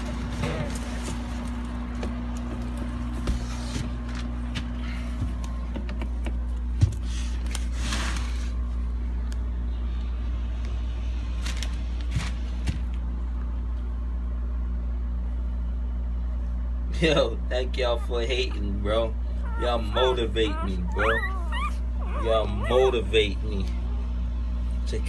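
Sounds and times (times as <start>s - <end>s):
steady low hum: 8.4s - 25.0s.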